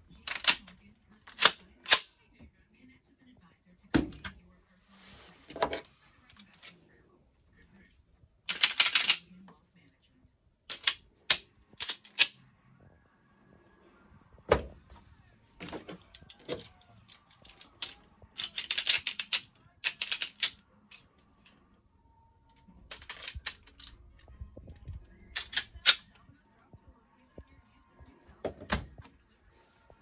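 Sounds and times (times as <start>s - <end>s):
pistols clicking being loaded: 0.2s - 0.7s, 1.3s - 2.1s, 8.5s - 9.3s, 10.7s - 12.4s, 16.1s - 21.0s, 22.8s - 24.0s, 25.3s - 26.1s.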